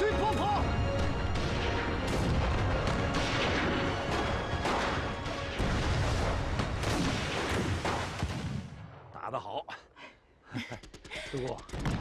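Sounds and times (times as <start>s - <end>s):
artillery firing and shells exploding: 1.0s - 9.1s.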